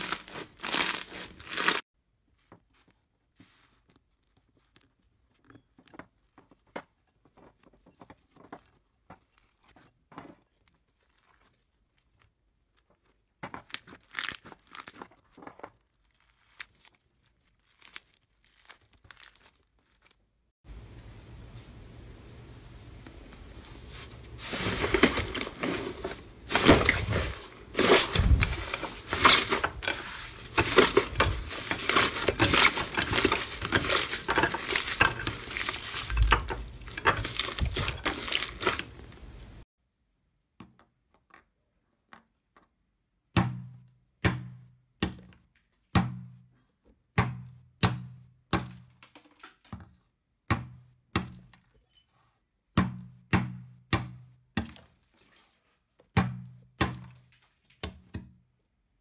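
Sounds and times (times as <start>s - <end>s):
slime crackling and popping: 0.0s - 1.8s, 15.9s - 20.2s.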